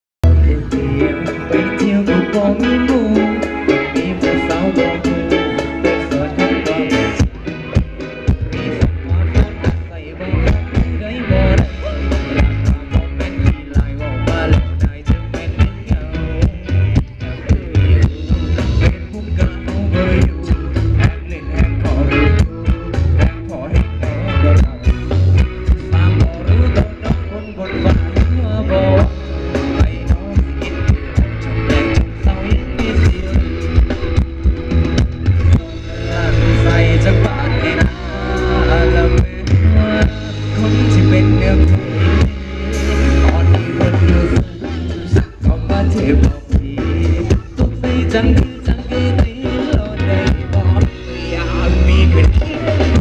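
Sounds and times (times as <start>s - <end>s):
heavy bass line: 0.2s - 53.0s
instrumental melody: 0.2s - 53.0s
live band playing dance music: 0.2s - 53.0s
drum beat: 0.7s - 53.0s.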